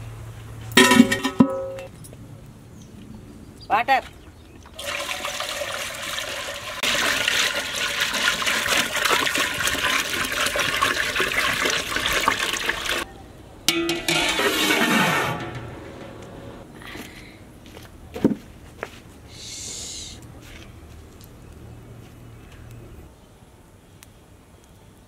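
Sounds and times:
water pouring into metal pot: 4.8s - 13.1s.

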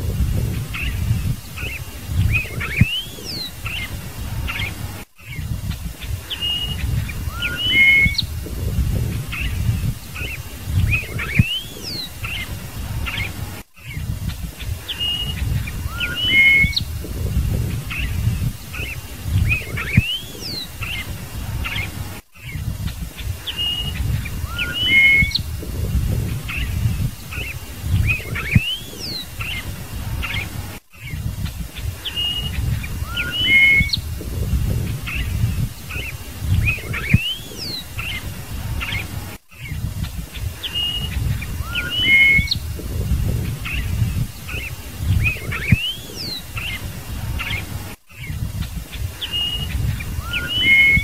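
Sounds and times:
low rumble: 0.0s - 1.4s, 8.2s - 10.0s, 16.8s - 20.0s, 25.4s - 28.5s, 34.0s - 35.8s, 42.6s - 44.4s
bird singing whistled notes: 0.1s - 51.0s.

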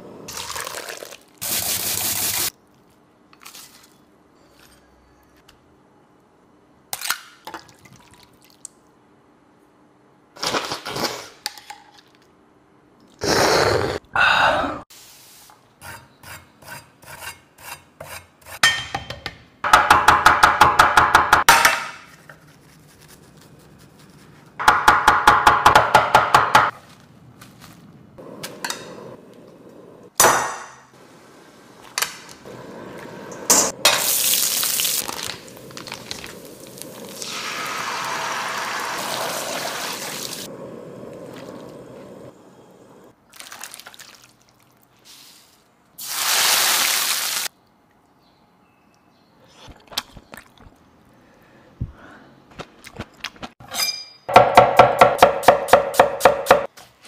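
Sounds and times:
pan of broth hissing: 32.5s - 43.1s.

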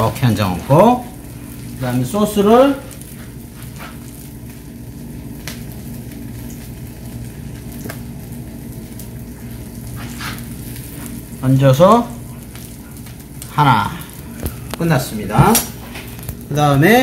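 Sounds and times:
food sizzling on griddle: 0.0s - 17.0s
low steady hum: 0.0s - 17.0s.

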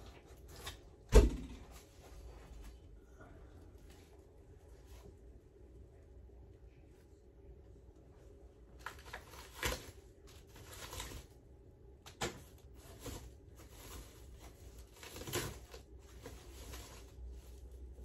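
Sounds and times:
plastic bag crackles: 8.8s - 11.4s, 12.2s - 18.0s
plastic bag rustling: 8.8s - 11.4s, 12.2s - 18.0s.

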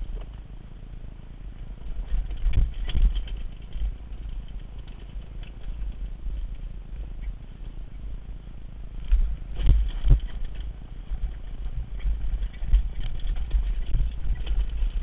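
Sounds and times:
wind rumbling on microphone: 0.0s - 0.6s, 1.4s - 15.0s
mountain bike rattling over dirt: 1.8s - 7.2s, 9.0s - 15.0s.

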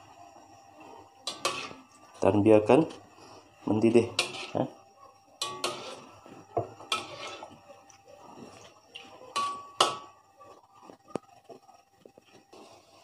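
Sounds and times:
metal spatula scraping a wok: 1.2s - 1.9s, 3.9s - 4.8s, 5.4s - 7.6s.

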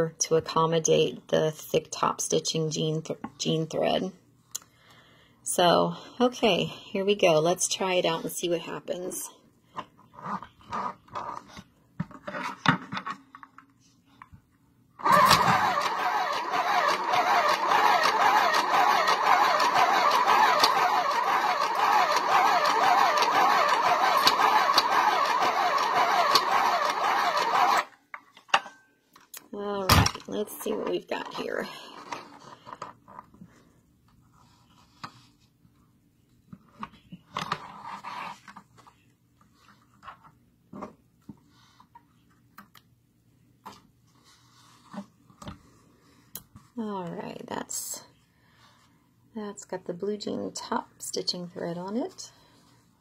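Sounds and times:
sewing machine stitching: 15.0s - 27.9s.

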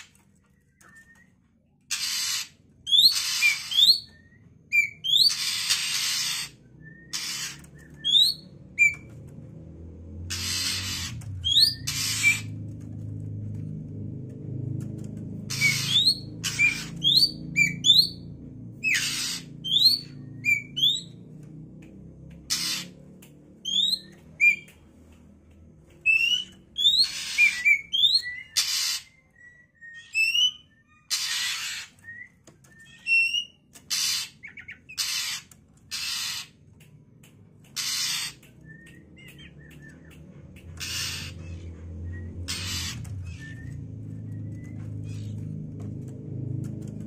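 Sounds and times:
bird harsh calls: 1.9s - 9.1s, 10.3s - 12.6s, 15.5s - 18.2s, 18.8s - 21.2s, 22.5s - 23.0s, 26.0s - 36.7s, 37.7s - 40.0s, 40.6s - 45.6s.

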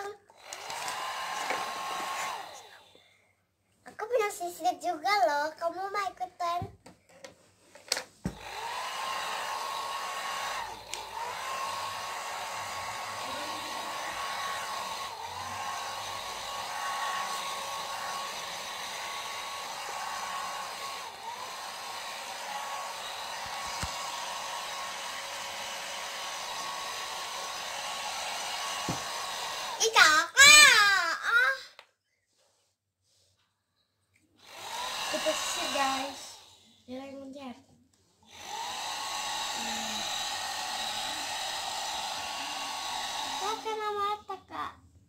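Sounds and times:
hair dryer blowing: 0.0s - 3.1s, 8.0s - 30.6s, 34.4s - 37.0s, 38.2s - 44.2s.

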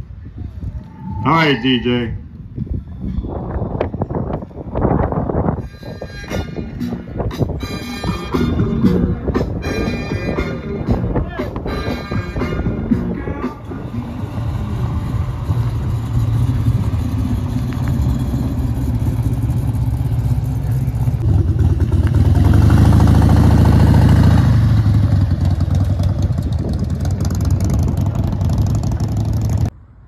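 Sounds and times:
motorcycle riding past: 13.8s - 29.7s
car engine running: 13.9s - 29.7s.

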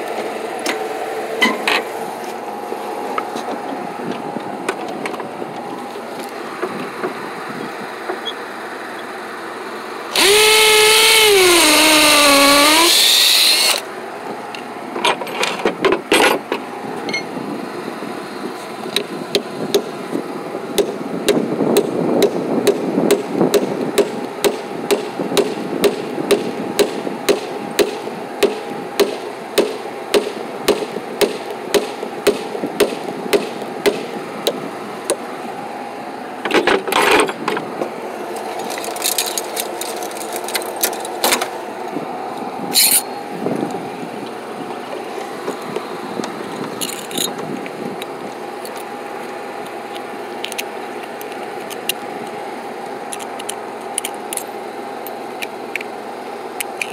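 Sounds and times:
running hum with ticks: 0.0s - 56.9s
cordless drill running: 10.1s - 13.8s.

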